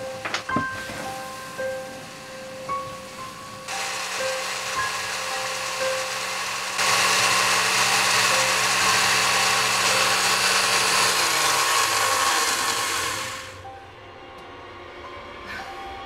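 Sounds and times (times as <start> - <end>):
electric blender motor running: 3.7 - 13.7.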